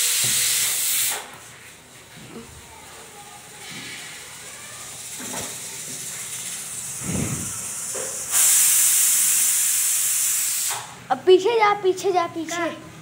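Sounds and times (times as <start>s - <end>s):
loud steady hiss: 0.0s - 1.3s, 3.4s - 11.1s.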